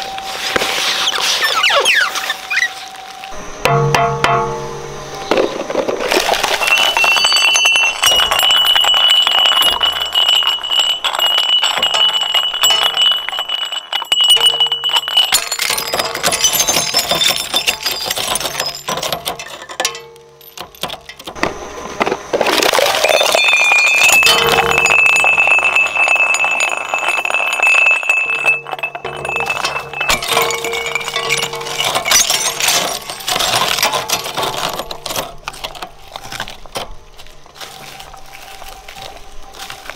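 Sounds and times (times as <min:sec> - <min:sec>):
shredder crunching plastic: 0:20.8 - 0:27.4.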